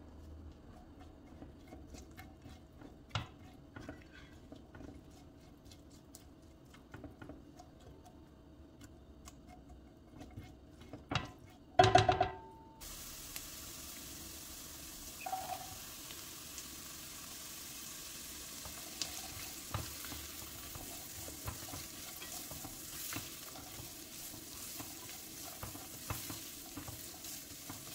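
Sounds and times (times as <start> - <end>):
spatula scraping in pot: 0.7 - 6.1, 9.4 - 11.7, 18.6 - 27.9
frying sizzle: 11.9 - 27.9.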